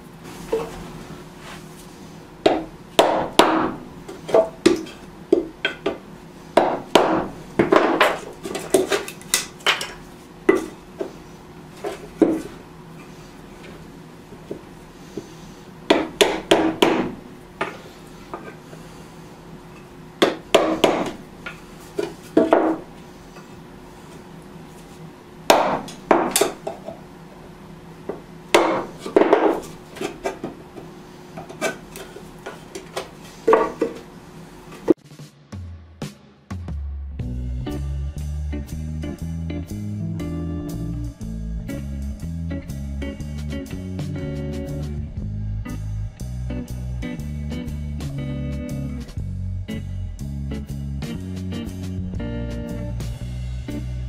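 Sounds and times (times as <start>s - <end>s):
hammer striking wood chisel: 2.4s - 6.0s, 6.6s - 9.9s, 15.9s - 17.7s, 20.2s - 21.2s, 22.4s - 22.8s, 25.5s - 26.8s, 28.5s - 29.7s.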